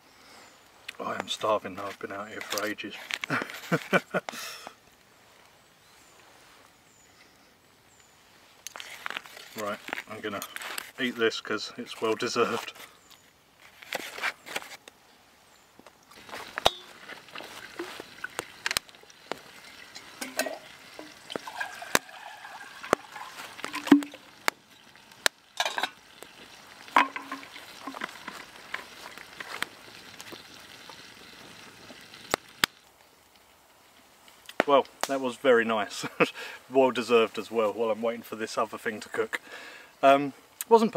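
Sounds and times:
campfire crackling and popping: 0.7s - 5.6s, 15.8s - 36.6s.

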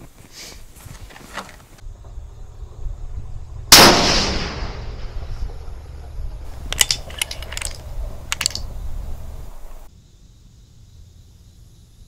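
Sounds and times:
rifle shot: 3.7s - 5.1s
rifle bolt clicking: 6.5s - 8.7s.

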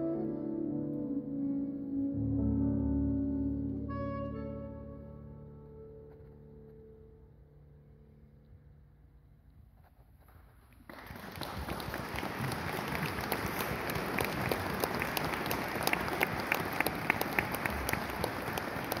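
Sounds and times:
audience applauding: 10.8s - 19.0s.

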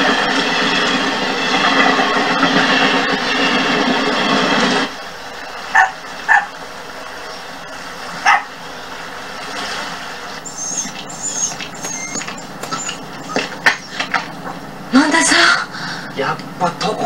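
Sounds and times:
dog barking: 5.7s - 6.6s, 8.2s - 8.6s, 10.4s - 14.3s
thin high-pitched chirps: 10.5s - 13.4s.

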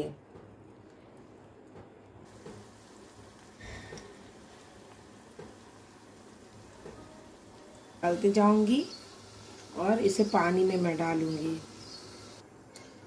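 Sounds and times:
hot oil sizzling: 2.2s - 12.4s.

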